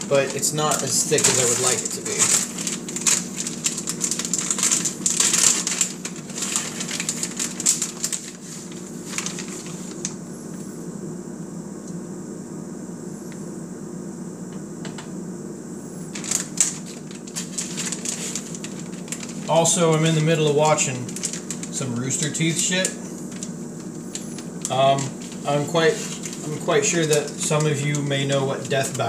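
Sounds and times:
plastic bag crinkling: 0.0s - 10.2s, 16.1s - 29.0s
steady low hum: 0.0s - 29.0s.

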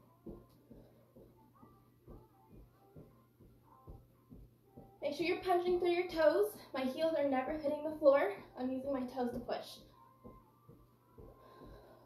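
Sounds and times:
bare feet thudding on carpet: 0.2s - 5.9s, 9.3s - 12.0s.

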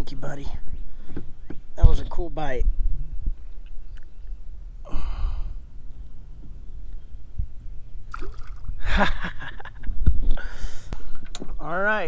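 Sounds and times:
fish splashing in water: 8.1s - 8.7s.

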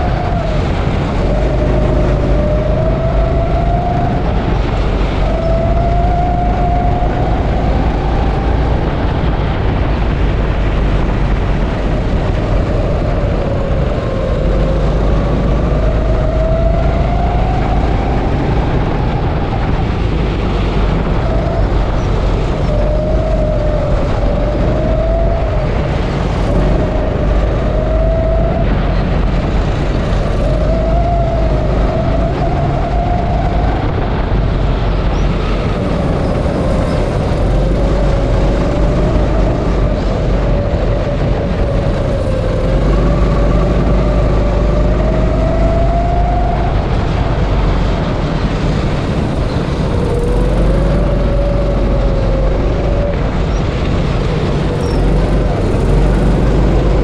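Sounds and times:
go-kart engine revving: 20.0s - 32.3s, 35.4s - 57.0s.

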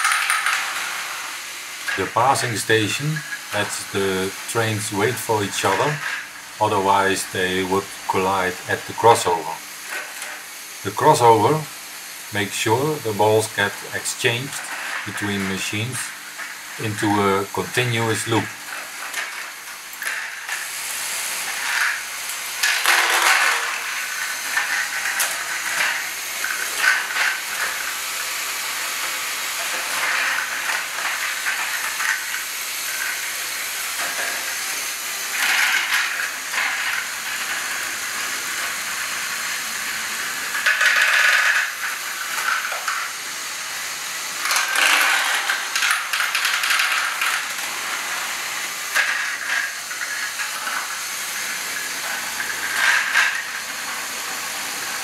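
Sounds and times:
plastic gears and balls clattering: 0.0s - 3.9s, 14.3s - 20.7s, 21.5s - 28.1s, 28.9s - 33.4s, 35.3s - 37.6s, 40.5s - 43.2s, 44.4s - 48.2s, 48.8s - 54.0s.

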